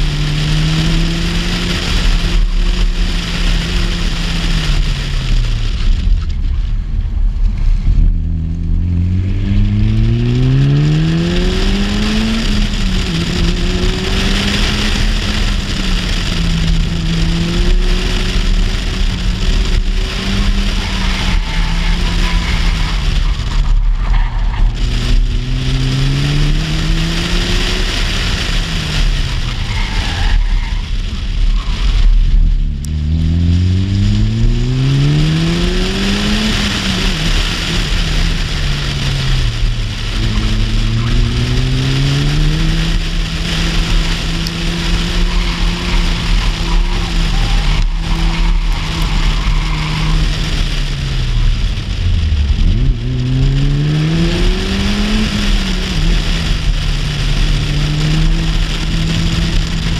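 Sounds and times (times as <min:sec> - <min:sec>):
car engine accelerating hard: 0:00.0 - 0:59.9.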